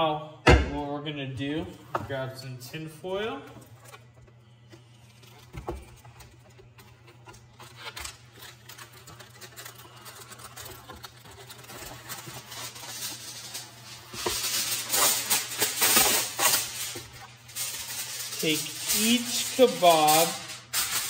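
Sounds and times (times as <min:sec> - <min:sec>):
aluminium foil crinkling: 0:03.1 - 0:21.0.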